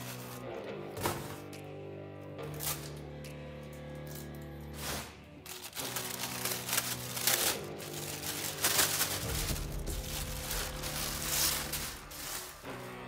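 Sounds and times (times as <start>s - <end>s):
background music: 0.0s - 13.0s
plastic bag crinkling: 5.4s - 13.0s.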